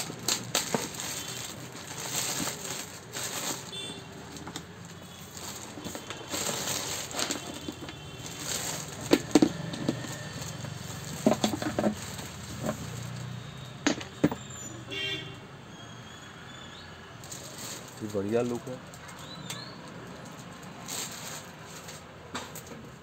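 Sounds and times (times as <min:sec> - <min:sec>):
plastic bag crinkling: 0:00.0 - 0:13.4, 0:17.2 - 0:19.4, 0:20.3 - 0:22.0.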